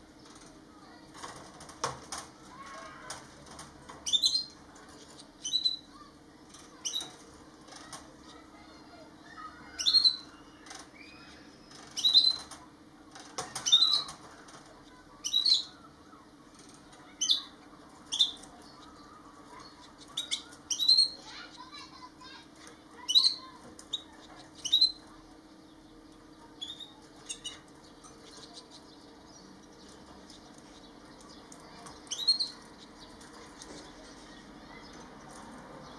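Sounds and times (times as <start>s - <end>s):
faint low hum: 0.0s - 35.9s
finches calling: 23.0s - 33.2s.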